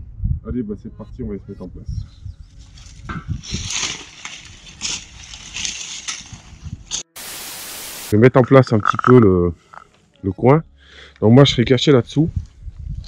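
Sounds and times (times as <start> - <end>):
hedge leaves rustling: 2.7 - 8.1
steady hiss: 6.9 - 8.1.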